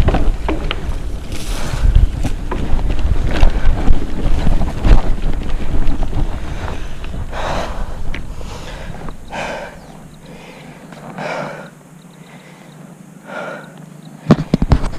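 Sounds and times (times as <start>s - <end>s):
bike rolling over dirt: 0.0s - 11.6s
wind buffeting microphone: 0.0s - 11.8s
person breathing out hard: 6.4s - 13.8s.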